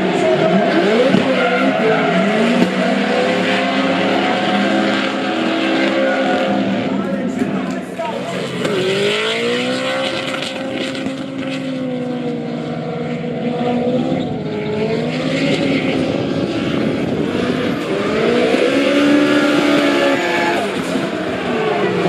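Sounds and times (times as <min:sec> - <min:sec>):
car engine revving high: 0:00.0 - 0:22.0.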